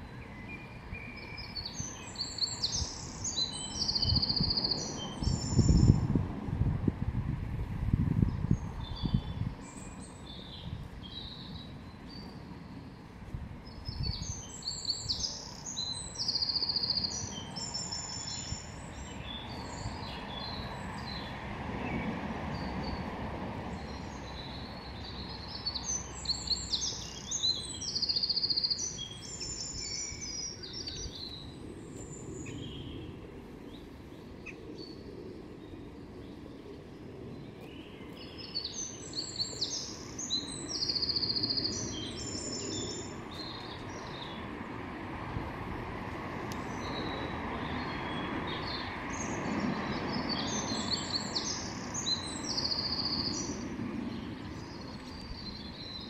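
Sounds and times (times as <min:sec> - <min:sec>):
songbirds chirping and trilling: 0:00.0 - 0:06.5, 0:08.1 - 0:56.0
outdoor background noise: 0:00.0 - 0:56.0.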